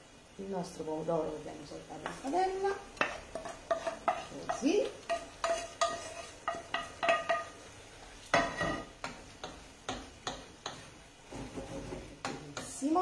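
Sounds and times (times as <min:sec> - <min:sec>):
spoon knocking on metal pans: 0:02.0 - 0:07.6, 0:08.3 - 0:13.0.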